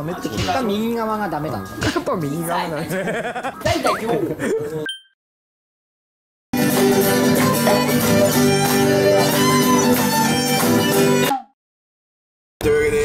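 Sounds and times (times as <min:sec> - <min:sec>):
acoustic guitars playing: 0:06.6 - 0:11.3.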